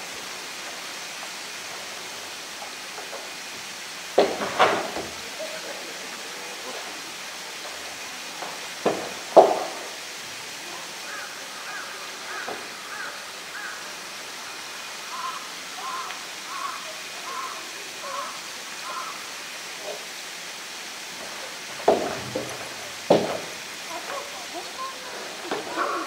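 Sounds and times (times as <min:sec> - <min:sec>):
bird calling: 0:11.0 - 0:19.2, 0:23.9 - 0:26.0
paws knocking on plastic tank: 0:21.8 - 0:23.6.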